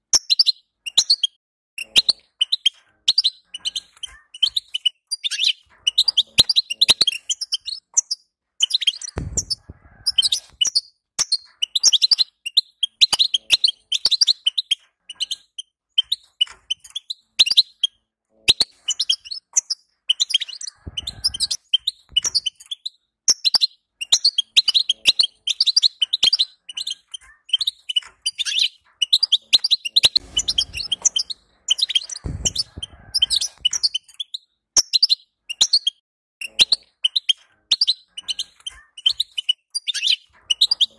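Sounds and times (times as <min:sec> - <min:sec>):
low thuds: 0:09.2 - 0:10.6, 0:30.2 - 0:33.8.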